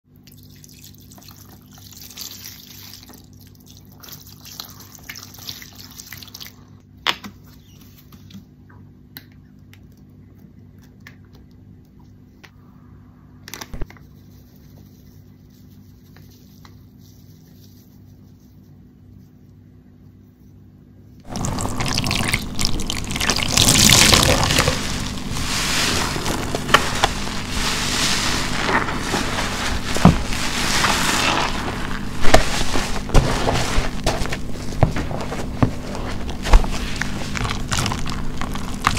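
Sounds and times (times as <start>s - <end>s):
sponge squelching with foam: 21.3s - 38.9s.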